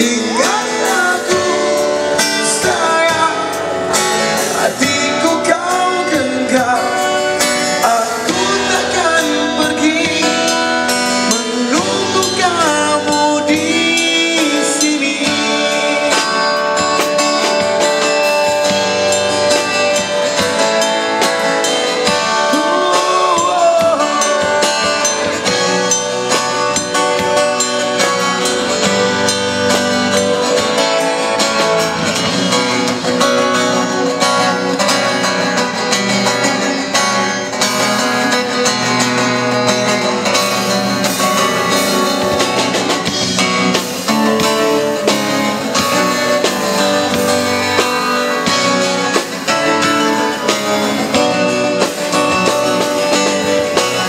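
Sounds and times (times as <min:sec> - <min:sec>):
person wordless singing: 0:00.0 - 0:17.1, 0:21.6 - 0:39.5
amplified guitar lead over chords: 0:00.0 - 0:54.0.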